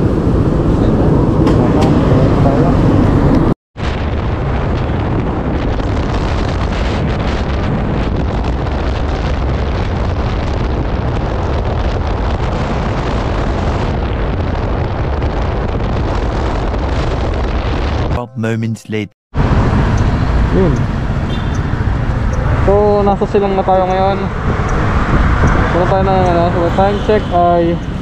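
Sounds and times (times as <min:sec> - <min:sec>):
road noise: 0:00.0 - 0:04.8, 0:19.4 - 0:28.0
wind buffeting microphone: 0:22.0 - 0:26.7.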